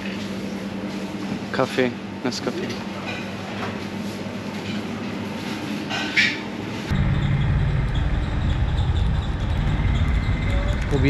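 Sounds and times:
low street background rumble: 0:06.9 - 0:11.0.

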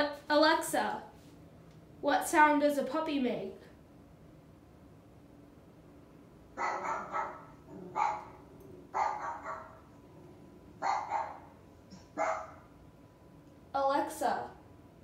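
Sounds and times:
recorded puppy barks from speaker: 0:06.6 - 0:09.9, 0:10.8 - 0:12.7.

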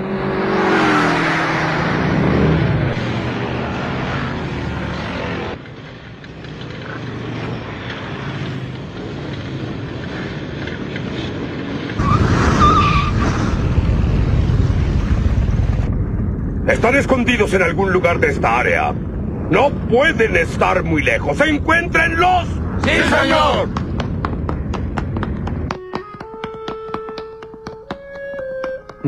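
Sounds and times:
loud rush of passing cars: 0:00.0 - 0:28.2
tyre squeal: 0:12.0 - 0:13.5.

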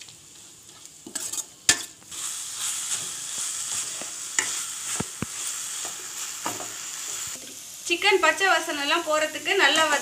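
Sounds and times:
food sizzling in a pan: 0:00.0 - 0:10.0
metal spoon scraping pan: 0:00.7 - 0:02.0, 0:02.6 - 0:06.6
spoon clacking on pan: 0:01.0 - 0:02.0, 0:02.9 - 0:06.8.

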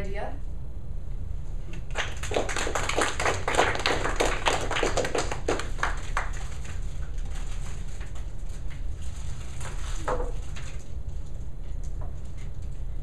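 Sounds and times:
small audience clapping: 0:01.7 - 0:07.1.

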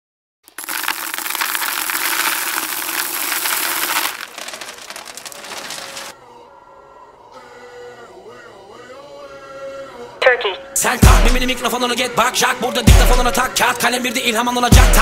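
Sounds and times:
crackling and crushing sound effect: 0:00.4 - 0:06.2.

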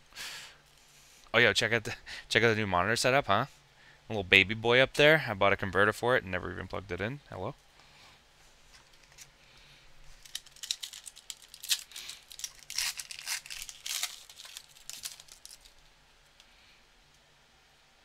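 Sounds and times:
foil wrapper tearing and crinkling: 0:10.1 - 0:15.8.

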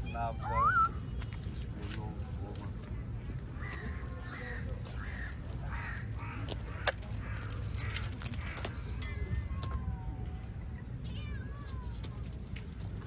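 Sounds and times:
crows cawing: 0:03.5 - 0:09.4.

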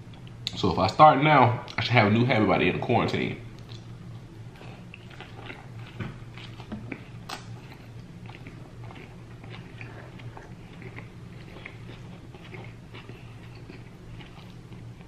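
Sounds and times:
steady low hum: 0:00.0 - 0:15.0
man chewing food: 0:03.5 - 0:15.0.

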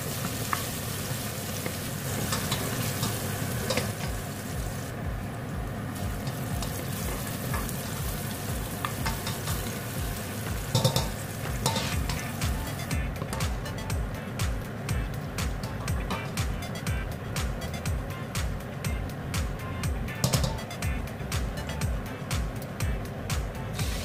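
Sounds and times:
garlic sizzling in oil: 0:00.0 - 0:13.6, 0:23.7 - 0:24.0
spatula scraping and tapping pot: 0:08.8 - 0:12.4.

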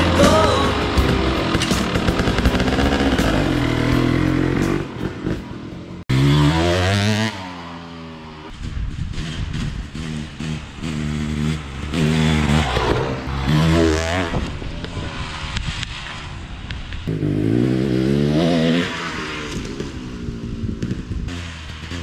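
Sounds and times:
dirt bike engine revving: 0:00.0 - 0:16.0, 0:17.0 - 0:22.0.

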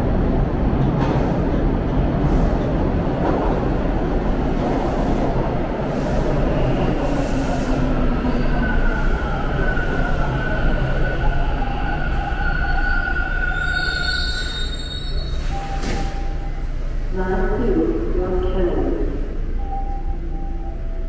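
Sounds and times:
subway train wheels rumbling on rail: 0:00.0 - 0:21.0
high brake squeal: 0:11.8 - 0:16.8.

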